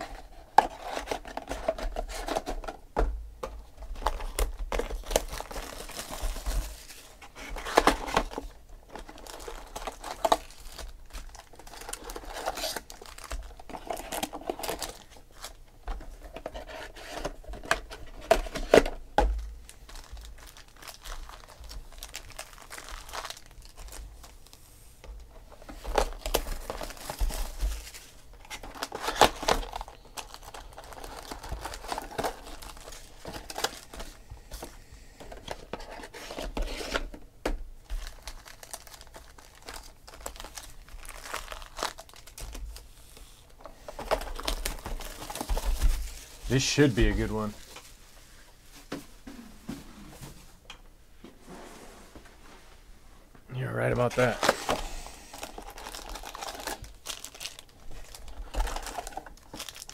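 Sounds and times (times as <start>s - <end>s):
wrappers crinkling: 3.9s - 15.6s, 19.4s - 24.6s, 25.5s - 34.2s, 37.8s - 48.0s, 53.8s - 59.9s
cardboard packaging tearing: 4.0s - 15.6s, 19.9s - 24.0s, 25.9s - 33.9s, 38.0s - 42.9s, 44.0s - 47.5s, 54.0s - 59.9s.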